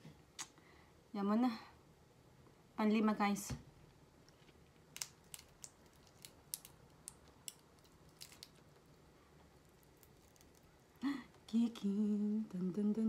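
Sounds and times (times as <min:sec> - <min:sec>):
shrimp shell crackling: 0:04.8 - 0:09.0, 0:09.6 - 0:11.0.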